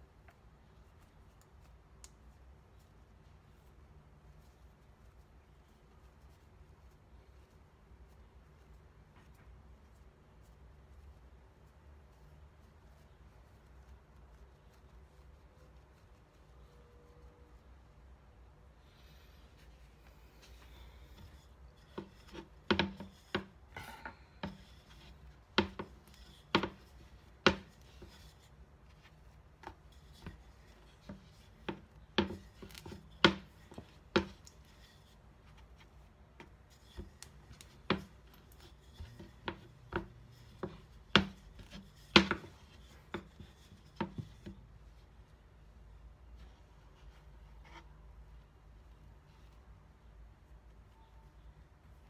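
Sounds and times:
rolling pin knocking on board: 0:21.9 - 0:23.5, 0:25.6 - 0:25.9, 0:31.1 - 0:34.4, 0:39.0 - 0:43.4.

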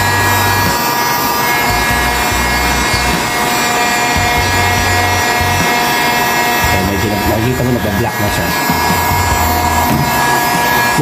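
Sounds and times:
heat gun fan whine: 0:00.0 - 0:11.0.

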